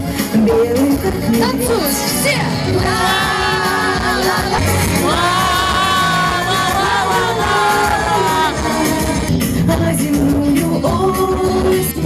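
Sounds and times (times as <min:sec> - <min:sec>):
backing music: 0:00.0 - 0:12.0
women singing long notes: 0:02.8 - 0:10.0.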